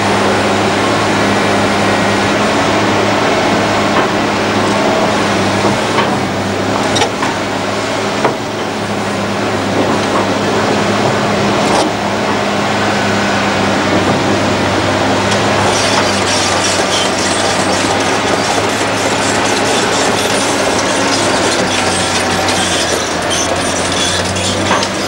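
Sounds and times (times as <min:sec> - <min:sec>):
excavator diesel engine running: 0:00.0 - 0:25.0
metallic clanking and squealing: 0:15.2 - 0:25.0.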